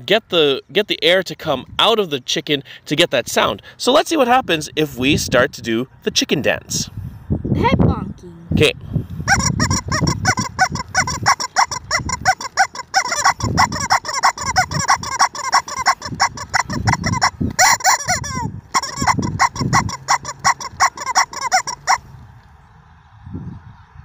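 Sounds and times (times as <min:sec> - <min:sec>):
rubber chicken squeaking: 0:09.2 - 0:22.1.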